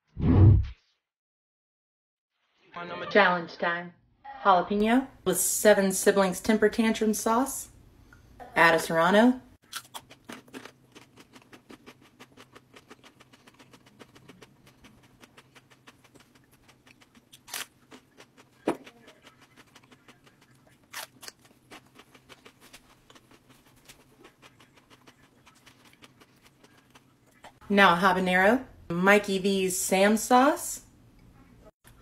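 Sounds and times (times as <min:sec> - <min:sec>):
person chewing crunchy peppers: 0:09.6 - 0:27.6.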